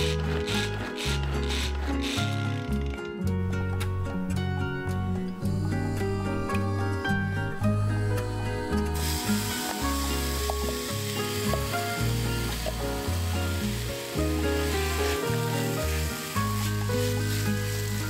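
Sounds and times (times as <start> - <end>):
onion sizzling in oil: 9.0 - 18.0.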